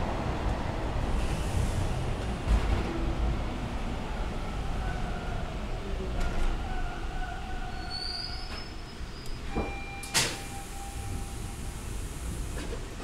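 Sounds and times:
subway car equipment rumble: 0.0 - 13.0
brief steady tone: 9.5 - 11.6.

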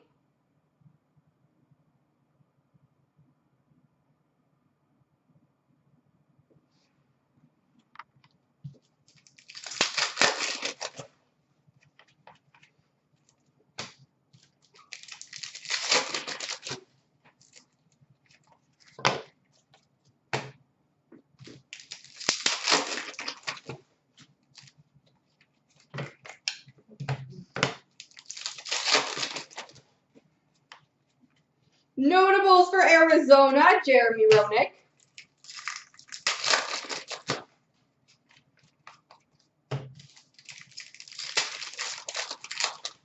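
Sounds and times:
cards and foil wrappers rustling: 9.1 - 11.1, 13.8 - 16.8, 21.4 - 24.8, 27.9 - 29.8, 34.5 - 37.4, 40.0 - 43.0.

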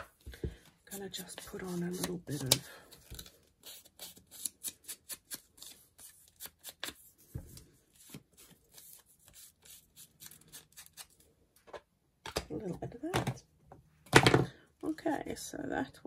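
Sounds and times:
paper and card crinkling: 0.9 - 11.2.

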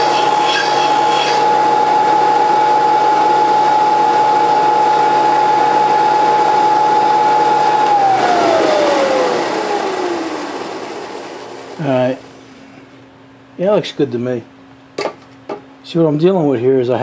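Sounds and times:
disc sander motor whining: 0.0 - 12.5.

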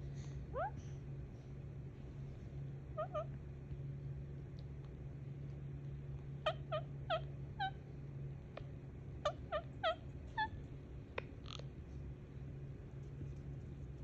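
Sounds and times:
steady low hum: 0.0 - 14.0
parakeet squawking: 3.0 - 3.3, 6.4 - 7.8, 9.2 - 10.6.

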